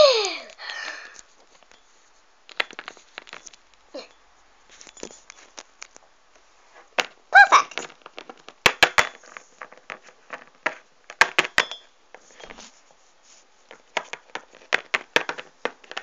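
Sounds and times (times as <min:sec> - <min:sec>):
short high voice: 0:07.4 - 0:07.7
plastic figures tapping on table: 0:13.9 - 0:16.0.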